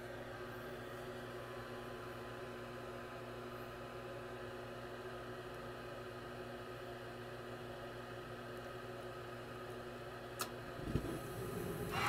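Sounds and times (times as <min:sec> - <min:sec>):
furnace motor humming: 0:10.4 - 0:12.0
even hiss: 0:11.0 - 0:12.0.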